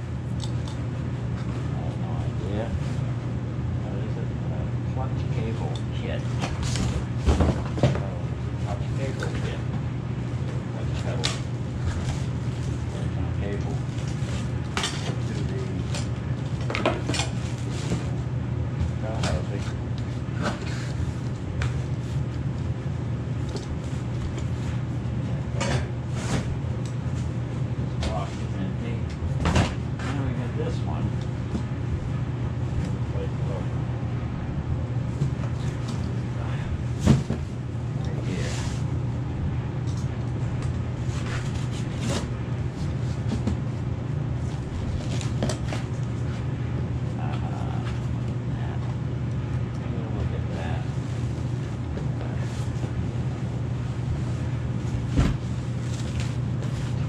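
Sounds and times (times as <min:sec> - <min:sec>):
steady low hum: 0:00.0 - 0:57.0
cardboard packing rustling: 0:54.7 - 0:57.0.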